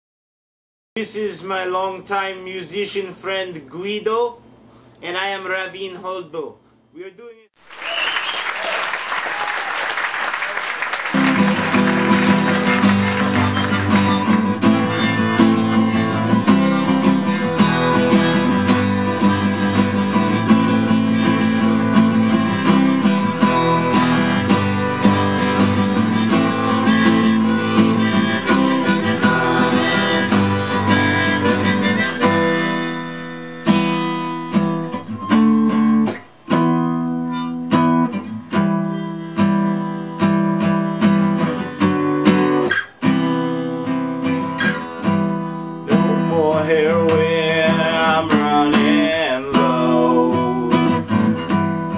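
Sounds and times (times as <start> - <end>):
harmonica: 10.4 - 51.9
acoustic guitar strumming: 10.8 - 51.9.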